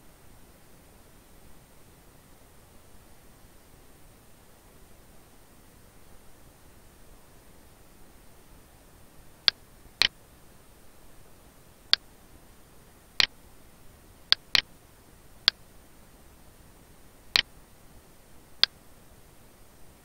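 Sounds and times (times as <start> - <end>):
faint steady hiss: 0.0 - 20.0
computer mouse clicking: 14.3 - 14.6.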